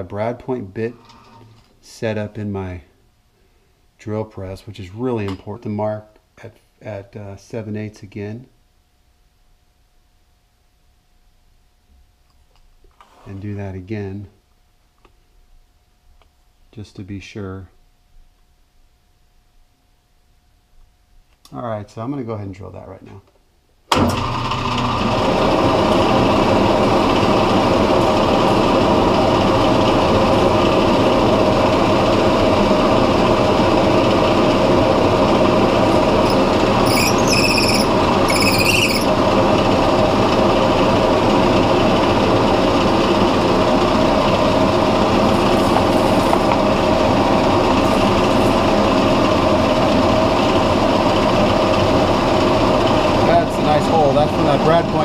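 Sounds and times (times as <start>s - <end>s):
drill press motor running: 24.0s - 55.0s
drill bit boring into wood: 35.4s - 39.2s.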